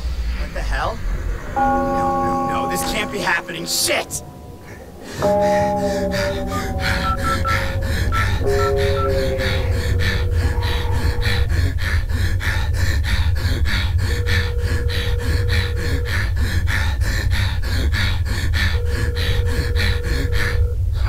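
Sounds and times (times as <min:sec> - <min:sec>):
low drone: 0:00.0 - 0:21.0.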